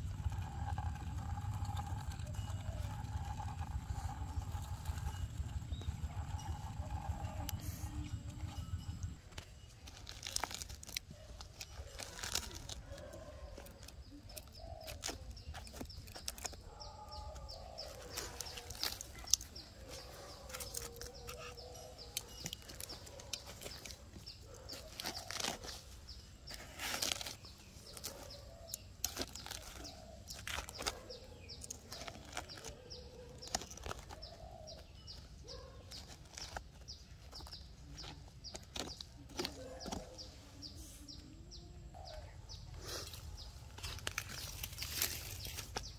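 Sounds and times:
knife scraping palm trunk: 0:00.0 - 0:08.0, 0:09.4 - 0:34.8
dry fibres crackling: 0:00.0 - 0:41.1, 0:41.9 - 0:45.9.

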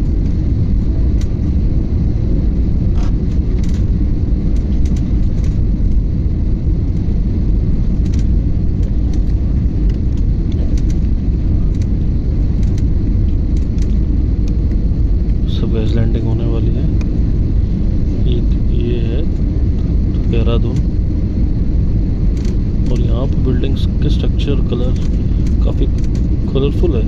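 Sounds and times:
jet cabin engine rumble: 0:00.0 - 0:27.0
faint ticks and rattles: 0:02.9 - 0:03.9, 0:07.9 - 0:17.1.

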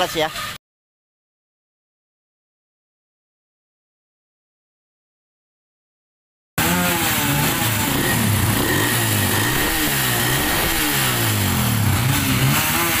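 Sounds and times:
motorcycle engine revving: 0:06.6 - 0:13.0.

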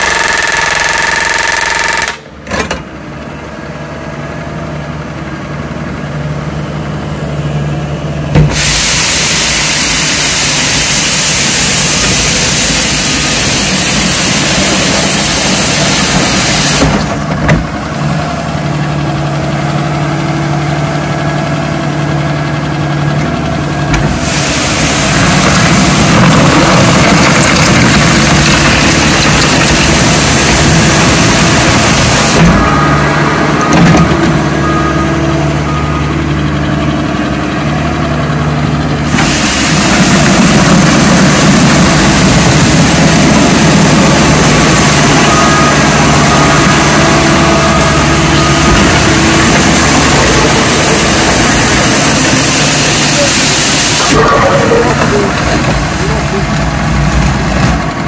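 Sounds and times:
diesel engine running: 0:00.0 - 0:58.0
loud even hiss: 0:08.4 - 0:17.2, 0:24.1 - 0:32.6, 0:39.0 - 0:56.8.

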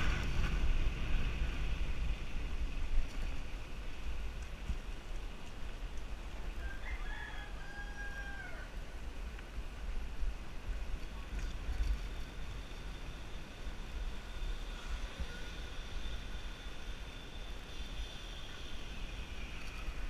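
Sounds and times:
wind rumble on microphone: 0:00.0 - 0:20.0
rooster crowing: 0:06.6 - 0:08.7.

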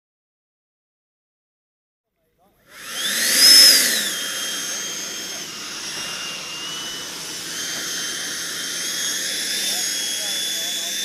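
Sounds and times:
model jet engine whine: 0:02.6 - 0:11.0.

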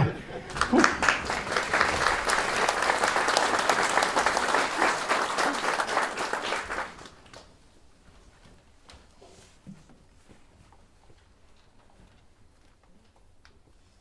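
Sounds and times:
audience applauding: 0:00.4 - 0:07.6.

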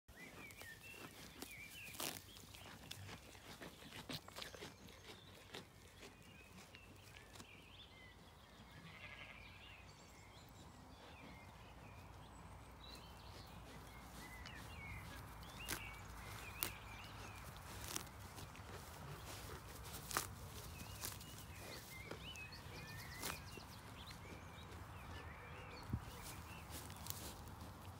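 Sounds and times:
faint birdsong: 0:00.1 - 0:27.9
sheep tearing grass: 0:00.2 - 0:07.5, 0:13.3 - 0:27.9.

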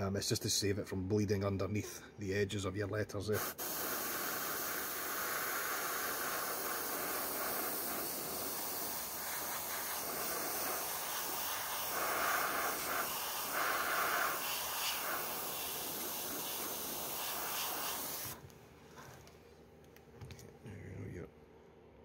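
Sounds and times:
airbrush hissing: 0:03.3 - 0:18.4.

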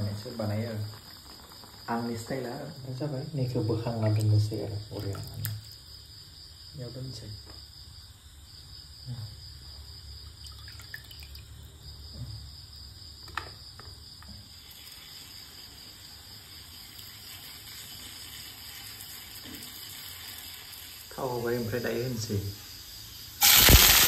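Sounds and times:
water splashing in a pan: 0:03.8 - 0:05.8, 0:10.3 - 0:11.7, 0:14.4 - 0:24.0.

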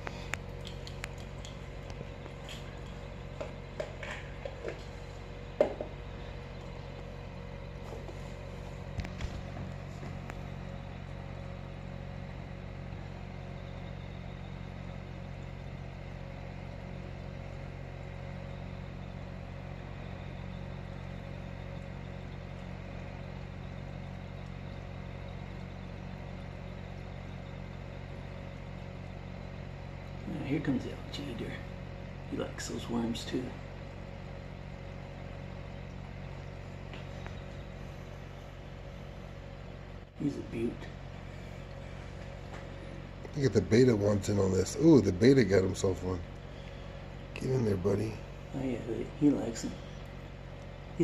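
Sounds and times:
faint clicks and taps: 0:00.0 - 0:05.0
aquarium equipment hum: 0:00.0 - 0:51.0.

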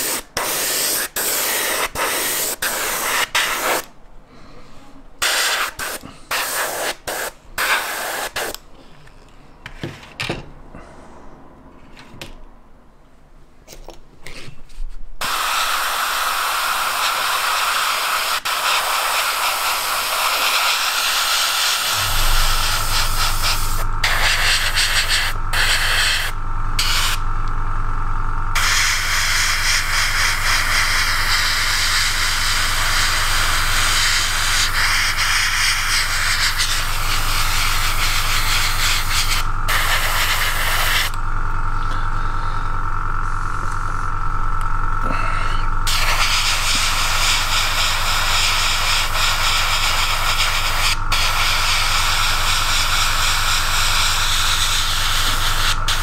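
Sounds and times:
airbrush hissing: 0:00.0 - 0:03.9, 0:05.2 - 0:08.6, 0:15.2 - 0:27.2, 0:28.5 - 0:41.2, 0:45.8 - 0:56.0
compressor humming: 0:19.2 - 0:56.0.

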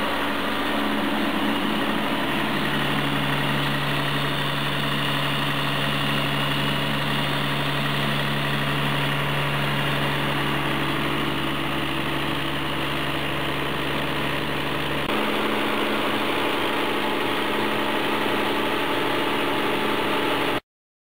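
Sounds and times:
diesel engine running: 0:00.0 - 0:20.6.

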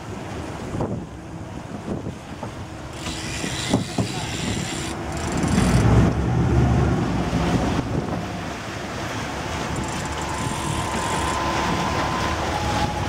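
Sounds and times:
boat engine running: 0:00.0 - 0:13.0
rushing water: 0:00.0 - 0:13.0
wind buffeting microphone: 0:03.3 - 0:13.0.

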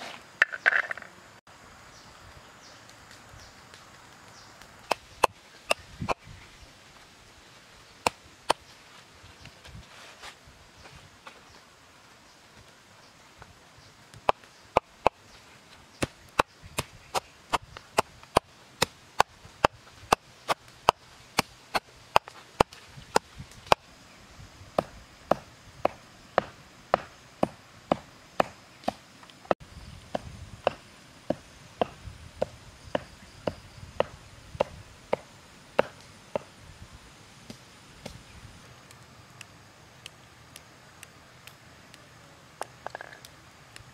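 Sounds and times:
cleaver chopping on wooden block: 0:24.8 - 0:29.0, 0:35.8 - 0:36.5.

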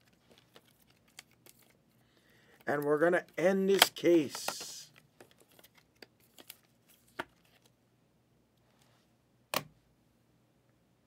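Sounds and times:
cards and wrapper rustling: 0:00.0 - 0:07.7.

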